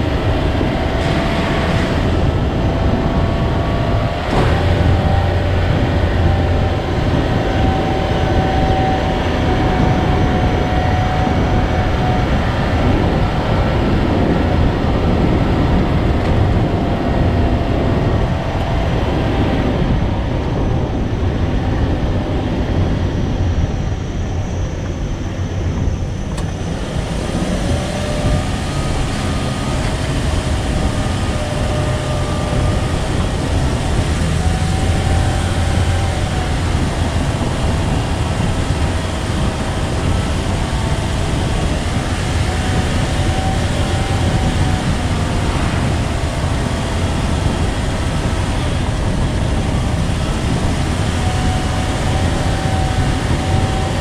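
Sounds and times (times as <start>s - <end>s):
road noise: 0.0s - 54.0s
vehicle engine: 0.0s - 54.0s.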